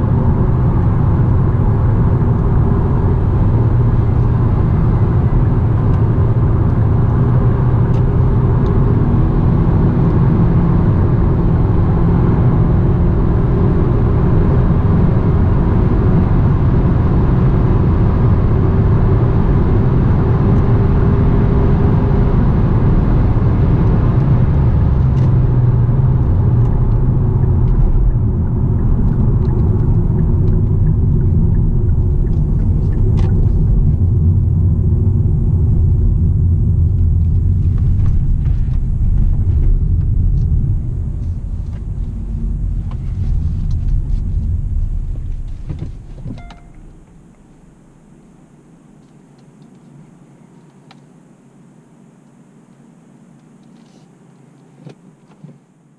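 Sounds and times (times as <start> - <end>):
car engine and road noise: 0.0 - 50.6.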